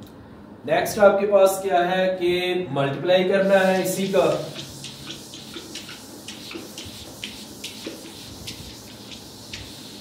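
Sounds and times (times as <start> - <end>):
eraser swishing on whiteboard: 3.4 - 10.0.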